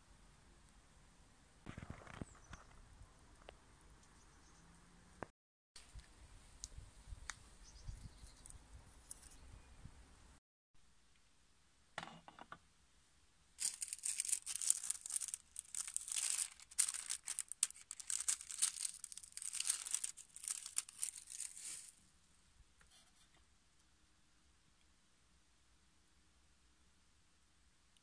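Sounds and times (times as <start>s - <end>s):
metallic foil crinkling: 13.6s - 22.0s.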